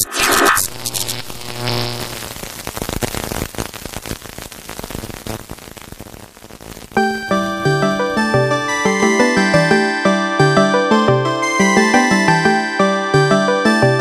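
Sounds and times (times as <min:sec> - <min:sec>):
dense crackling clicks: 0:00.0 - 0:08.7.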